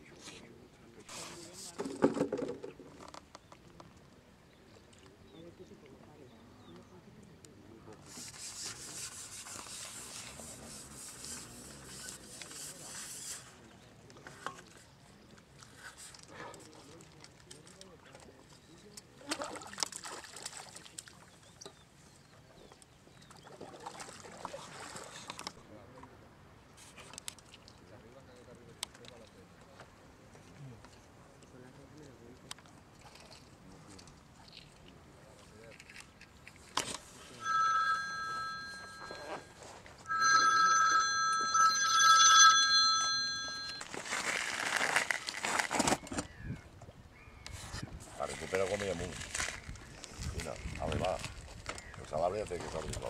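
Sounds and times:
phone ringing: 0:37.4 - 0:44.0.

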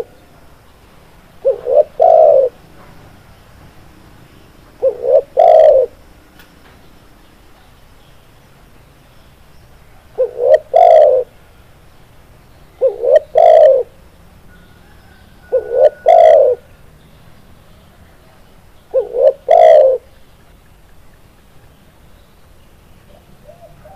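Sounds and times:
dove cooing: 0:00.0 - 0:00.3, 0:01.4 - 0:02.6, 0:04.7 - 0:06.0, 0:10.1 - 0:11.4, 0:12.8 - 0:16.8, 0:18.9 - 0:20.2, 0:23.1 - 0:23.9.

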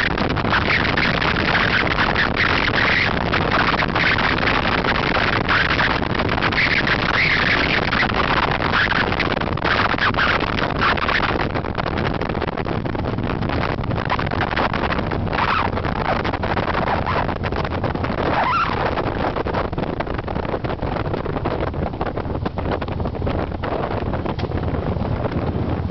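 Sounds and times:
motorcycle engine and tyres drone: 0:00.0 - 0:25.9
wind buffeting microphone: 0:00.0 - 0:25.9.

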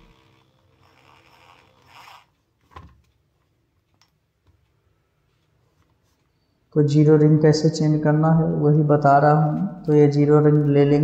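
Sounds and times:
soft rustle: 0:04.6 - 0:06.6.

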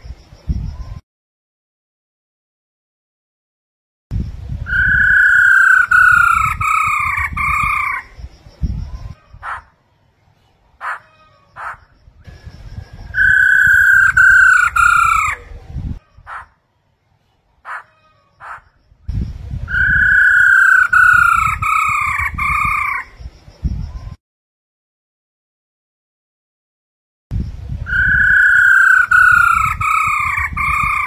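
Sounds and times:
bird down-slurred whistles: 0:12.3 - 0:15.2.

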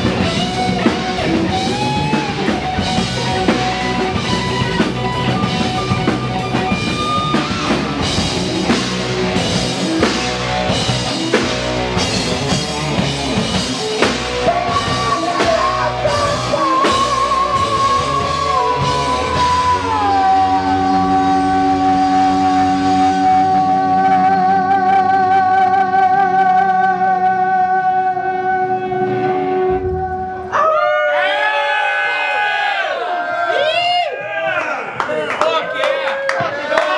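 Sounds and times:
heavy metal band playing live: 0:00.0 - 0:26.4.

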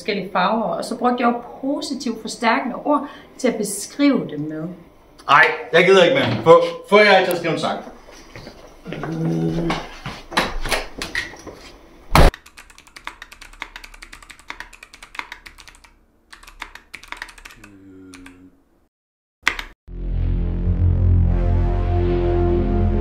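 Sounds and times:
fast typing on keyboard: 0:12.3 - 0:18.4, 0:19.5 - 0:19.8.

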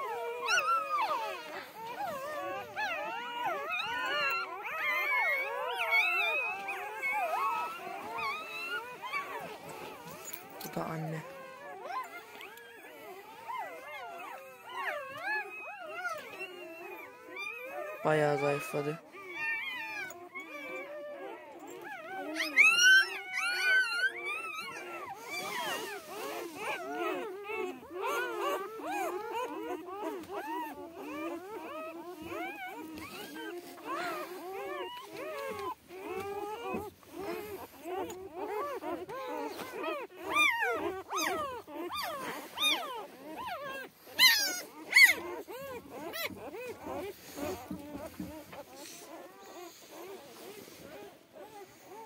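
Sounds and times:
puppies whining and squeaking: 0:00.0 - 0:52.0.

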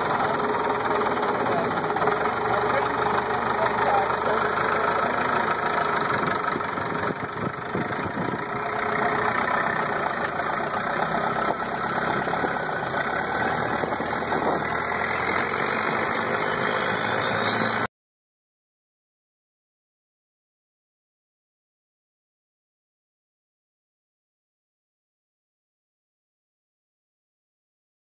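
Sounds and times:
boat engine running: 0:00.0 - 0:17.9.

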